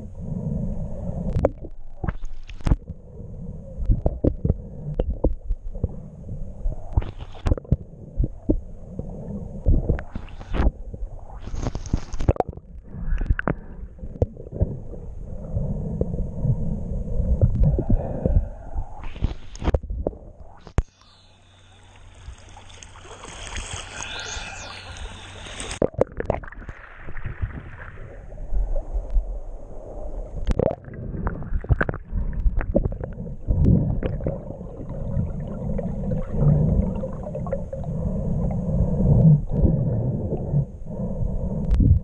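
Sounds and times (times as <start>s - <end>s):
muffled underwater rumble: 0.0s - 42.0s
water hiss: 20.6s - 25.8s.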